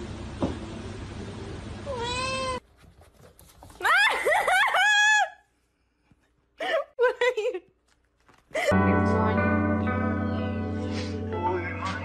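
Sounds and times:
cat meowing: 1.9 - 2.6
kitten meowing: 1.9 - 2.6.

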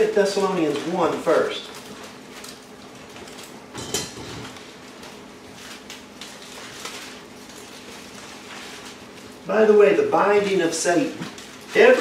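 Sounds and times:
thin pages rustling: 4.5 - 9.4.

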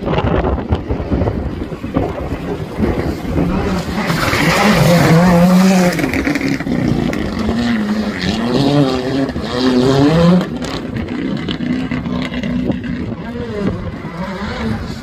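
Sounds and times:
rally car engine shifting gears: 0.0 - 15.0.

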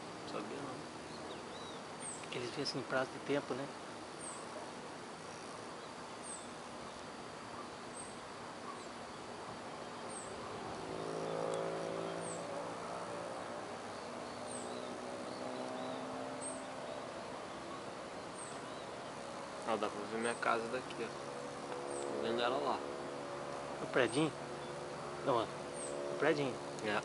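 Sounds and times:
outdoor background noise: 0.0 - 27.0
vehicle engine passing: 9.7 - 27.0.

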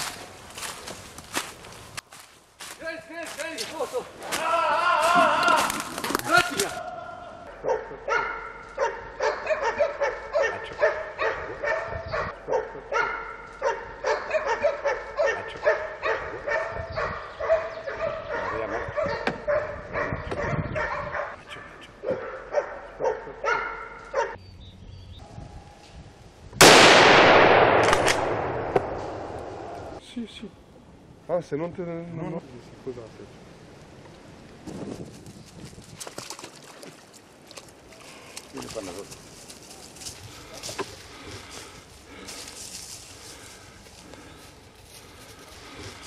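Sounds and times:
dogs barking and yelping: 7.5 - 24.4
loud gunshot with echo: 26.6 - 30.0.

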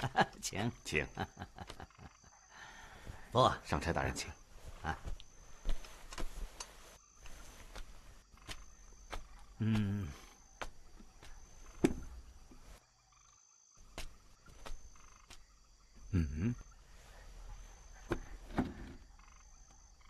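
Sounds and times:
man humming: 9.6 - 10.3, 16.0 - 16.7.

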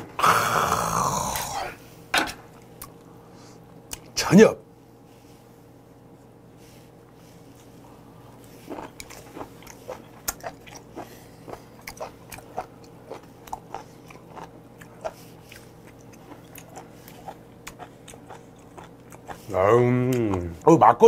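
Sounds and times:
faint steady hum: 0.0 - 21.0
man chewing wetly: 7.4 - 20.6.

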